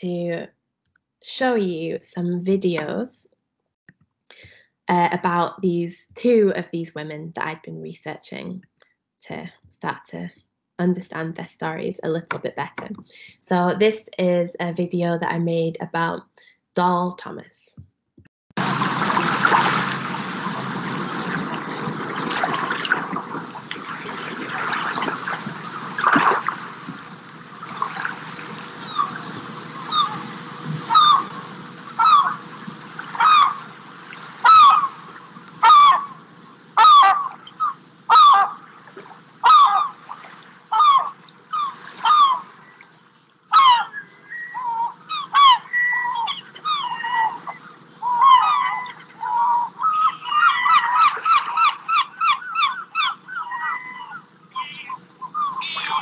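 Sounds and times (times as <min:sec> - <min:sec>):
outdoor rushing noise: 0:18.6 - 0:34.4
geese honking: 0:27.7 - 0:38.7, 0:39.4 - 0:42.5, 0:43.5 - 0:56.0.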